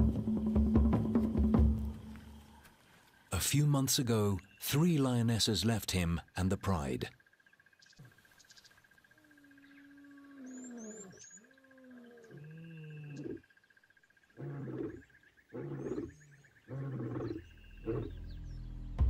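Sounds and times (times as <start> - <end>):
deep lion grunts: 14.4 - 18.1
lion roaring: 14.4 - 18.2.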